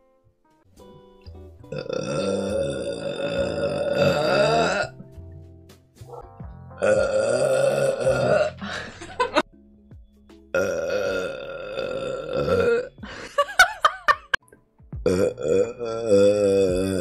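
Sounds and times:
woman burping loudly: 1.7s - 5.0s, 6.8s - 9.4s, 10.5s - 14.4s, 15.0s - 17.0s.

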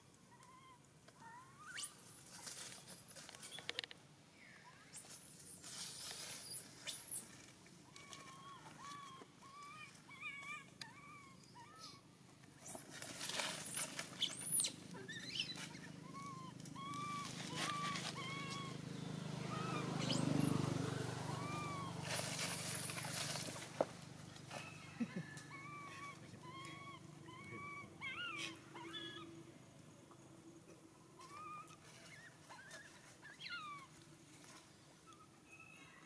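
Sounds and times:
rustle of leaves: 1.8s - 3.7s, 4.9s - 9.6s, 12.6s - 15.9s, 16.8s - 24.8s.

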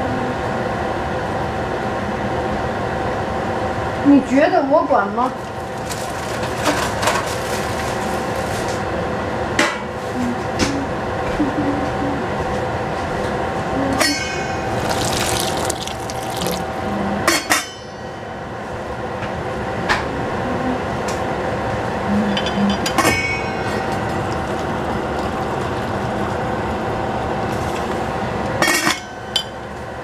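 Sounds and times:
pot boiling: 14.6s - 16.8s, 23.8s - 28.2s
water pouring into pot: 14.7s - 16.8s, 24.1s - 26.8s.

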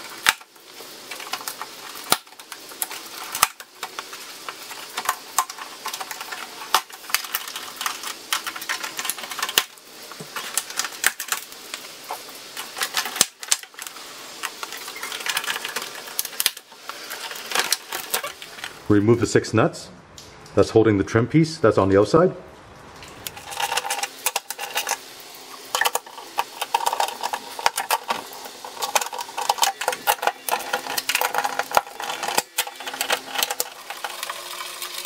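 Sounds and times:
plastic clips clicking and snapping: 1.1s - 11.5s, 12.6s - 18.8s, 25.8s - 35.0s.

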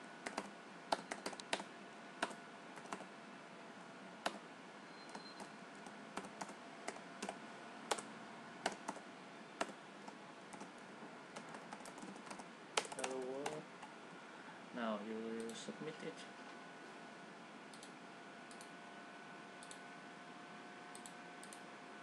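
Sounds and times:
faint steady hiss: 0.0s - 22.0s
computer keyboard typing: 0.2s - 3.1s, 5.1s - 9.0s, 9.6s - 13.6s.

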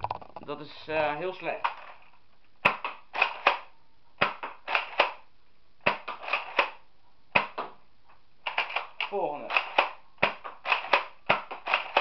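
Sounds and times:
toy blaster plastic clacks: 8.5s - 12.0s.

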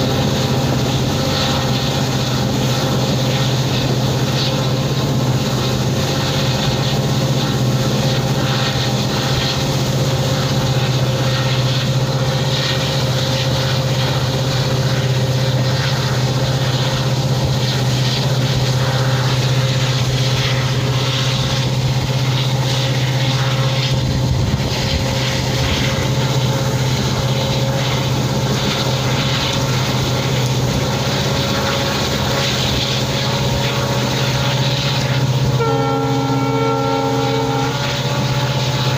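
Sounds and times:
diesel locomotive engine drone: 0.0s - 38.9s
moving train rushing noise: 0.0s - 38.9s.

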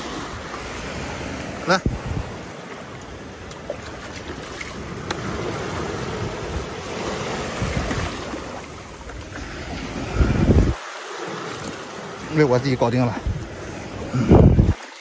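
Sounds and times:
wind on microphone: 0.0s - 2.5s, 3.2s - 10.8s, 13.0s - 14.8s
sea surf washing: 0.0s - 15.0s.

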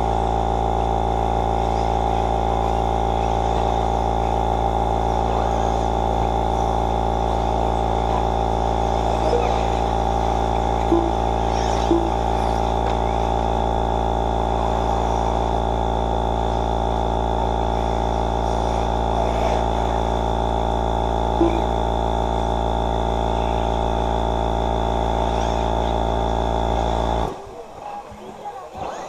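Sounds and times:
droning hum: 0.0s - 29.0s
short beeps: 10.9s - 12.2s, 21.4s - 21.7s.

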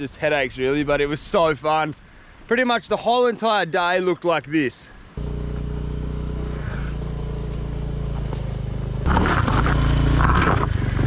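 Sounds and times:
motor scooter engine running: 5.2s - 11.0s.

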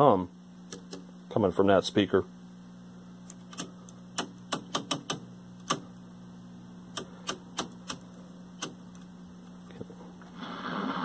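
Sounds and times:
static hiss: 0.0s - 11.0s
steady speaker hum: 0.0s - 11.0s
channel selector clicking: 3.3s - 5.9s, 6.9s - 8.0s.

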